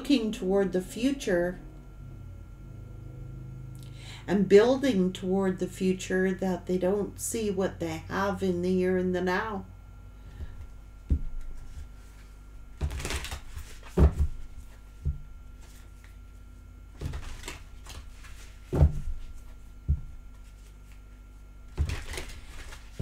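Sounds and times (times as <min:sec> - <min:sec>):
cards shuffling: 0:11.4 - 0:14.3, 0:17.0 - 0:18.8, 0:20.3 - 0:23.0.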